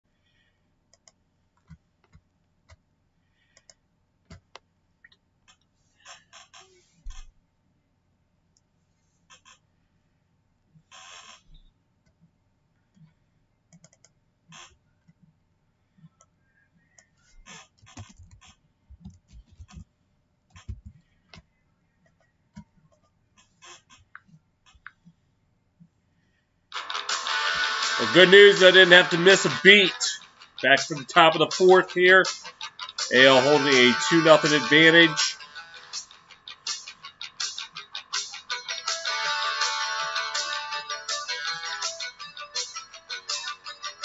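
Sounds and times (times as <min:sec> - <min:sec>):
computer mouse clicking: 0:00.9 - 0:02.8, 0:13.7 - 0:14.2.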